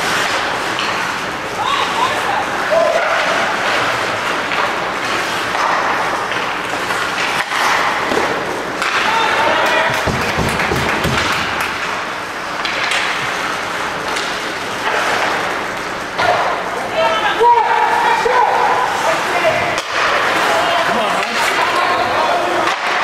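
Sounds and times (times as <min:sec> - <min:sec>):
crowd clapping: 0:09.6 - 0:11.8.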